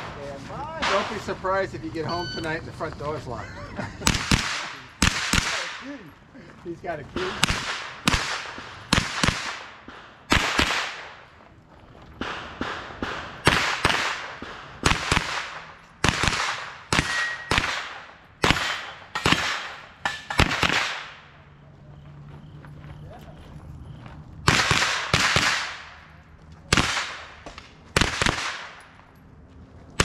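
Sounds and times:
pistol shots: 4.0s - 6.0s, 7.2s - 11.3s, 12.2s - 21.4s, 24.4s - 29.0s.

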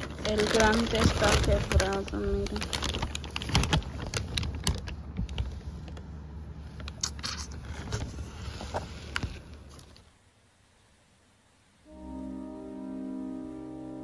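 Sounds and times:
plastic wrapping crinkling: 0.0s - 6.1s.

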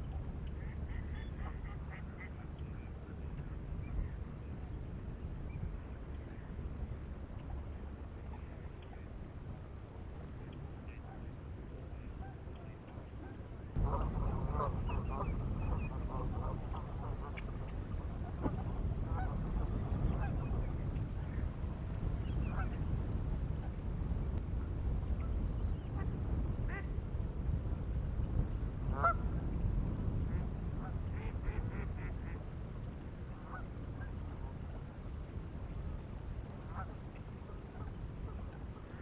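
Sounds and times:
low rumble: 13.6s - 39.0s.

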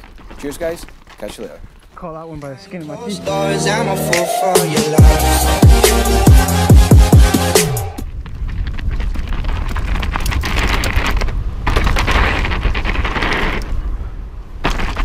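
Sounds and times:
bike rattling over bumps: 0.0s - 2.0s, 8.0s - 15.0s
tyre noise: 0.0s - 2.6s, 7.9s - 15.0s
wind buffeting microphone: 8.0s - 15.0s.

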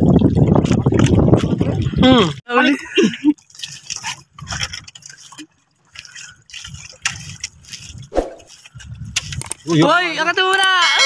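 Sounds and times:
wind buffeting microphone: 0.0s - 2.4s, 6.5s - 10.4s
water sloshing against wooden boat: 0.0s - 10.6s.

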